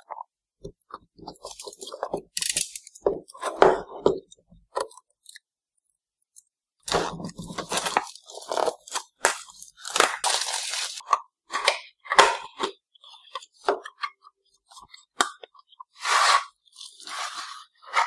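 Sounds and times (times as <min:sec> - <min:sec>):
cardboard box crinkling: 0:07.3 - 0:11.0.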